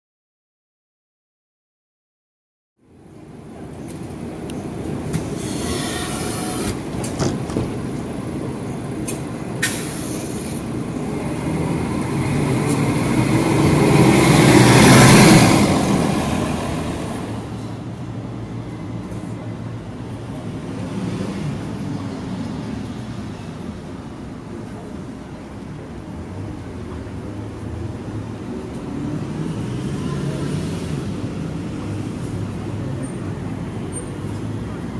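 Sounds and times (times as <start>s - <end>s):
street traffic rumble: 2.8s - 34.9s
large vehicle passing: 9.8s - 18.0s.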